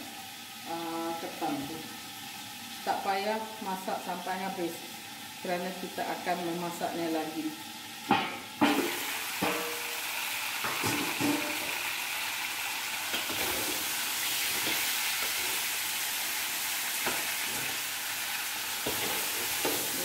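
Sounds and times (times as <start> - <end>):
food sizzling in a wok: 0.0 - 20.0
metal spatula scraping wok: 8.7 - 10.0, 13.1 - 15.8, 18.7 - 20.0.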